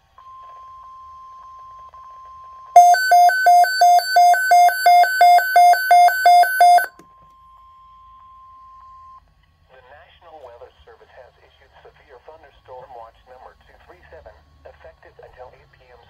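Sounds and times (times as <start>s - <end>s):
faint steady alert tone: 2.8s - 6.9s
pulsing two-tone beep: 2.8s - 6.9s.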